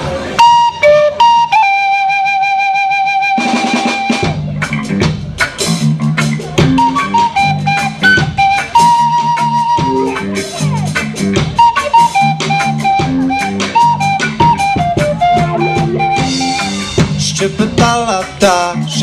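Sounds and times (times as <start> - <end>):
drum kit: 0.0 - 19.0
guitars: 0.0 - 19.0
end-blown flute melody: 0.4 - 4.4, 6.7 - 10.6, 11.5 - 17.1.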